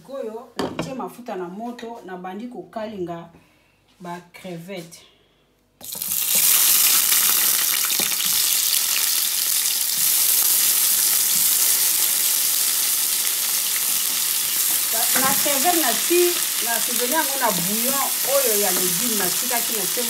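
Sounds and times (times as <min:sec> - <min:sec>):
shrimp sizzling in hot oil: 0:05.8 - 0:20.0.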